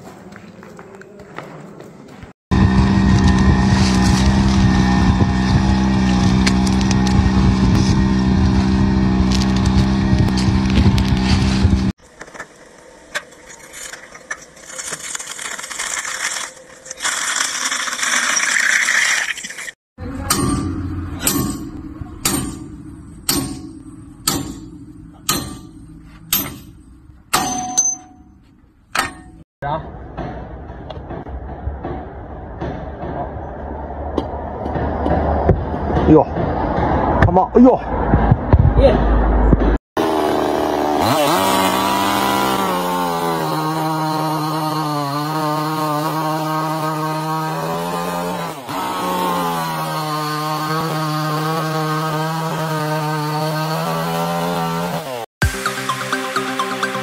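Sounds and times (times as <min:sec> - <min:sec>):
small engine droning: 0:02.5 - 0:12.0, 0:40.0 - 0:47.8
hammer striking steel wheel hub: 0:20.2 - 0:29.4.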